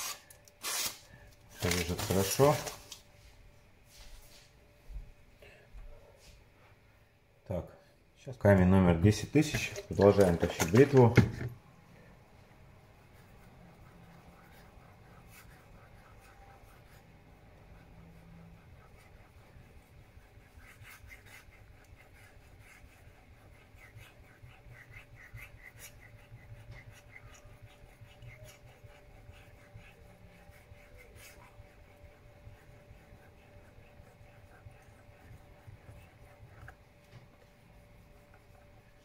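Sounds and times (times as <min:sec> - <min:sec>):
razor scraping on whetstone: 0:17.7 - 0:36.8.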